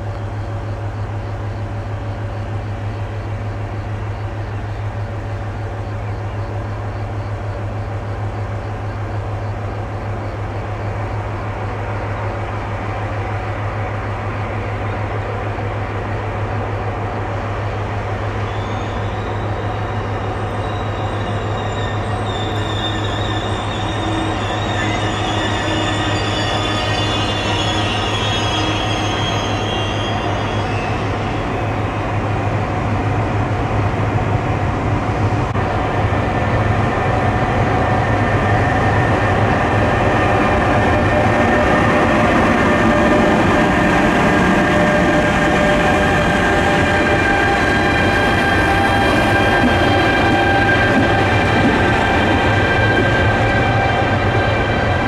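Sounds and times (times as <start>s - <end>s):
wheels squealing on rails: 13.8s - 33.2s, 33.9s - 55.0s.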